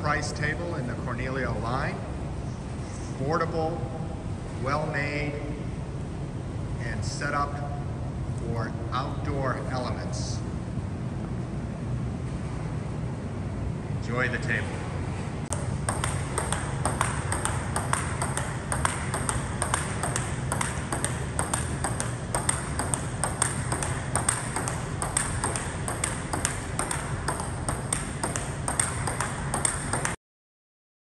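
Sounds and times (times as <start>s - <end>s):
ping pong ball clicking: 15.5s - 30.2s.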